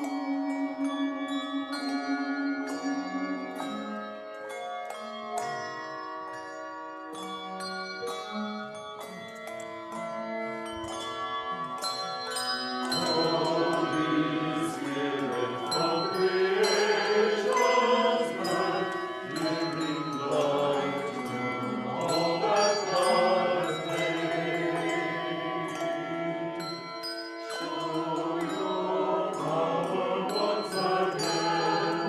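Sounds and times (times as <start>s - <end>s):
handbells ringing chords: 0.0s - 32.0s
mixed choir singing: 12.9s - 26.8s, 27.5s - 32.0s.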